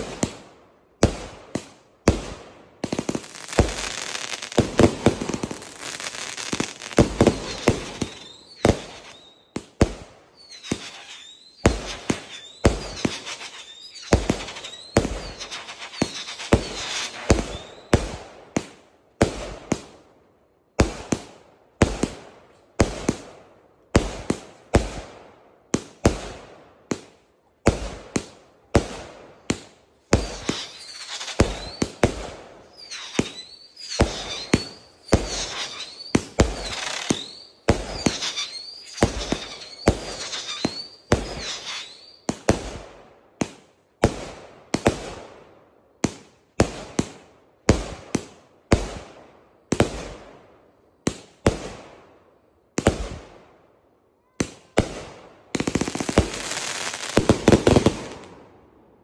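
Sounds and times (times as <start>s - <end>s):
firework cake sharp bangs: 0.0s - 20.0s, 25.8s - 45.3s, 54.3s - 58.5s
rising and falling firework whistles: 3.0s - 18.2s, 30.2s - 42.5s, 55.6s - 58.3s.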